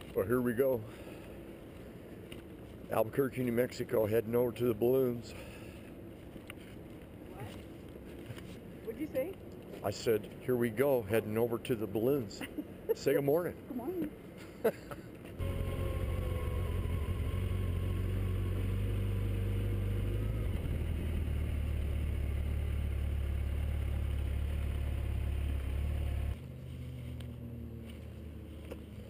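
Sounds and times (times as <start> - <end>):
outdoor background noise: 0.0 - 29.0
motorcycle engine running: 15.4 - 29.0.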